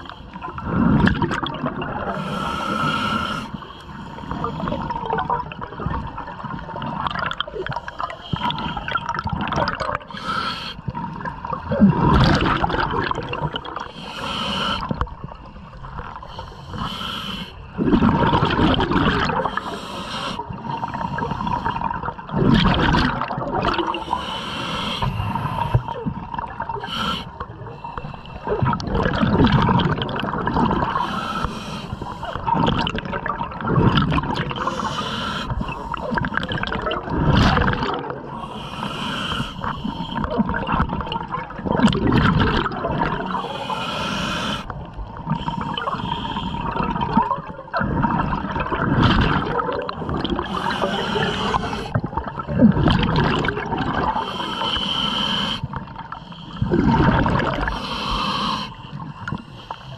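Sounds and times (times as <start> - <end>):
exhaled bubbles bursting: 0.0 - 2.2, 4.4 - 10.2, 10.9 - 13.9, 17.8 - 19.7, 20.4 - 24.1, 28.4 - 31.1, 32.2 - 34.9, 35.6 - 38.5, 39.7 - 43.4, 44.7 - 54.4, 55.7 - 58.0
regulator inhalation hiss: 2.1 - 4.7, 10.1 - 10.8, 13.9 - 14.9, 16.3 - 17.6, 19.5 - 21.8, 24.0 - 25.9, 26.8 - 28.4, 30.9 - 32.4, 34.6 - 36.0, 38.4 - 40.2, 43.3 - 44.7, 50.4 - 52.0, 54.2 - 56.6, 57.6 - 59.9.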